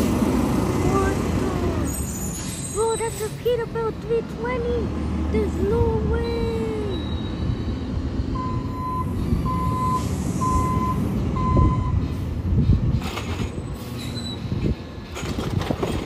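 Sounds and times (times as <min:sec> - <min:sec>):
truck clanks and rattles: 0:00.0 - 0:16.0
backup alarm beeping: 0:08.3 - 0:12.0.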